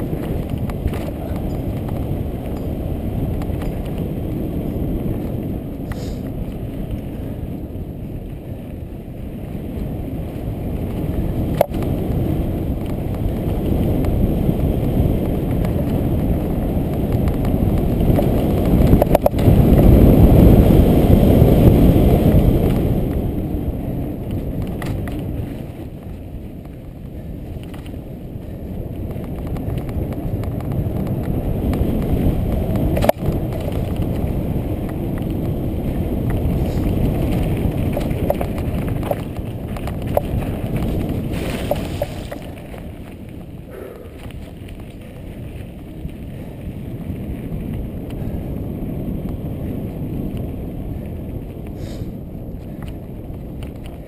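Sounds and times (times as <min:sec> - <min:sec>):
bike tyres rumbling on dirt: 0:00.0 - 0:54.0
rushing air: 0:05.8 - 0:07.6, 0:35.4 - 0:39.2, 0:40.1 - 0:53.8.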